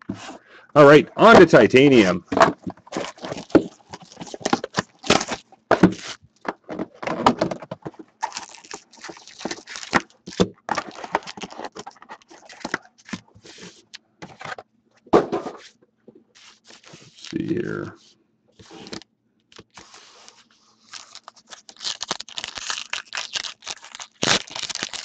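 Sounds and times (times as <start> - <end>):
foil and cardboard crinkling: 2.0 - 6.2, 7.8 - 13.6, 16.4 - 17.5, 19.6 - 25.0.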